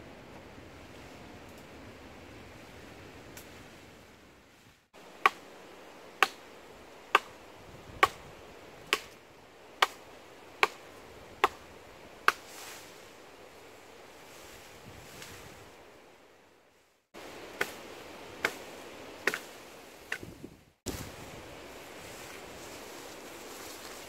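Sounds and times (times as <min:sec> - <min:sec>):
blade chopping wooden pole: 0:08.0 - 0:08.2, 0:08.9 - 0:09.2, 0:09.8 - 0:10.0, 0:10.6 - 0:10.8.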